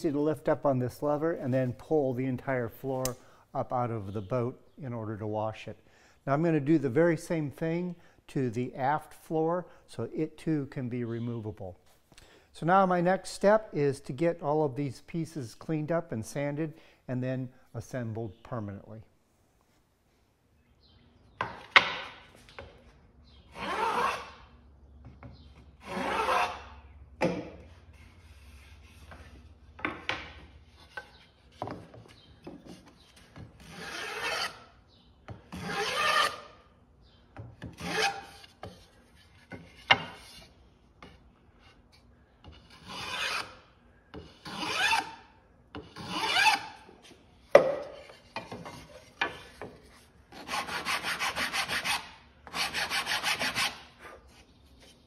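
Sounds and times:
hand plane shaving wood: 0:23.6 - 0:24.4, 0:35.6 - 0:36.4, 0:42.6 - 0:43.5, 0:44.3 - 0:45.2, 0:48.2 - 0:54.5.

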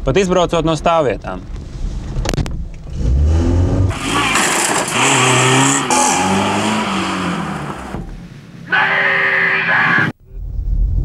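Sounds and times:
car engine revving: 0:02.8 - 0:08.2
heavy low rumble: 0:10.2 - 0:11.0.

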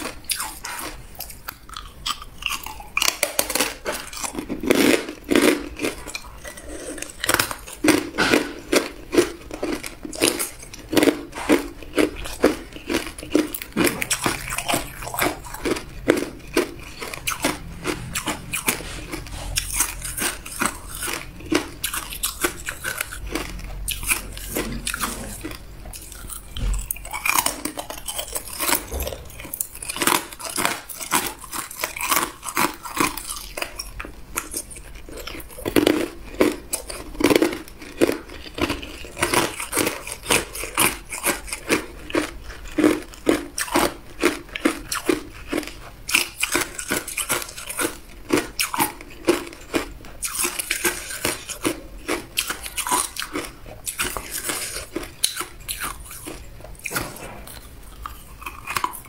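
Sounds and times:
person crunching ice: 0:00.0 - 0:59.0.

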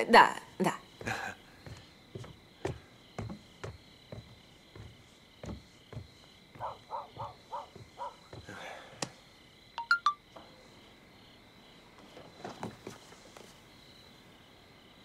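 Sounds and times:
high insect drone: 0:00.0 - 0:15.0
footsteps on wooden boards: 0:00.7 - 0:09.3, 0:12.1 - 0:13.5
croak-like calls: 0:06.5 - 0:08.4
sharp high chirps: 0:09.8 - 0:10.2.

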